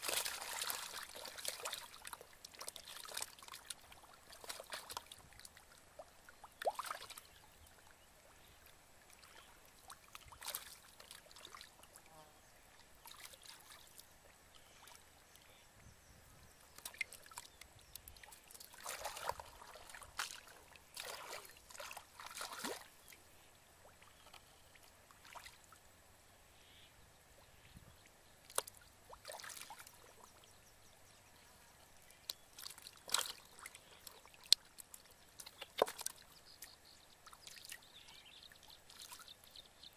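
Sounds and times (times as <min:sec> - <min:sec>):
hands sloshing in water: 0:00.0 - 0:05.6, 0:18.3 - 0:23.0, 0:28.5 - 0:30.0
fish splashing in water: 0:00.0 - 0:07.4, 0:09.1 - 0:12.0, 0:13.0 - 0:14.0, 0:16.8 - 0:23.1, 0:23.8 - 0:25.7, 0:28.4 - 0:30.3, 0:32.3 - 0:36.6.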